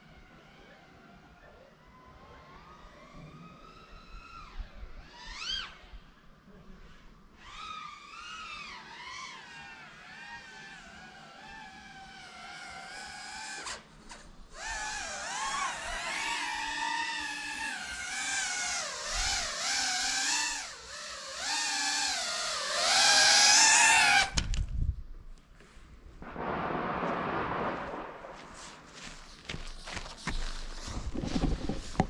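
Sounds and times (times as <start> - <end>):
drone motors whining: 7.4 - 24.4.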